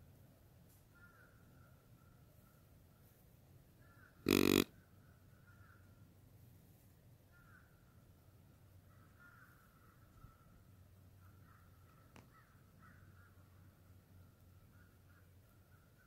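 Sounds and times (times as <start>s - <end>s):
faint bird calls: 0.9s - 3.2s, 3.8s - 6.0s, 7.3s - 8.1s, 8.8s - 16.0s
harsh animal call: 4.3s - 4.7s.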